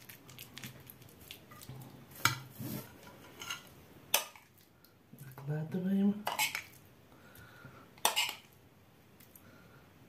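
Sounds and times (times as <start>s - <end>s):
cutlery scraping plate: 2.2s - 4.4s, 6.3s - 6.7s, 8.0s - 8.5s.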